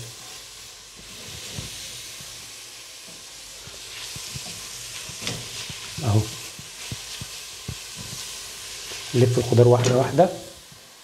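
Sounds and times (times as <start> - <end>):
vegetables sizzling in a pan: 0.0 - 11.0
spatula scraping and knocking pan: 3.1 - 8.3.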